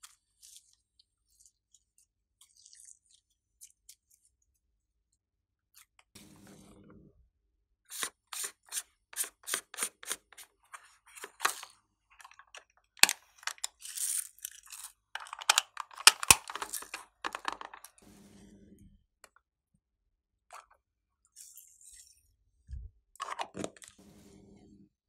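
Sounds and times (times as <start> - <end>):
plastic cracks: 15.2 - 18.0.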